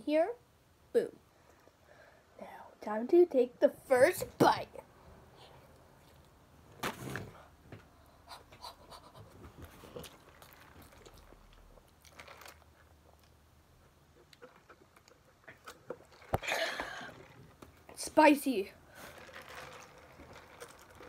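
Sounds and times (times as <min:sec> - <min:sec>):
chewing with crunches: 0:08.6 - 0:17.6.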